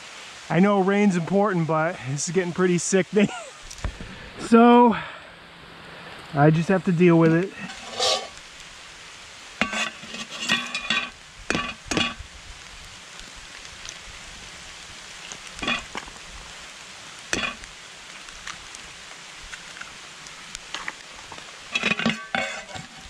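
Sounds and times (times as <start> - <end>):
potatoes and onions sizzling: 0.0 - 23.0
eggs cracked on pan: 9.6 - 12.2, 15.6 - 16.1, 17.4 - 17.7.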